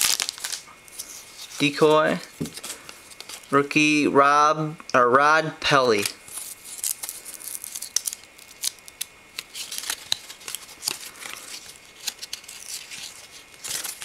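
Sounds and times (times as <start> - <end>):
cards flipping and snapping: 5.9 - 14.0.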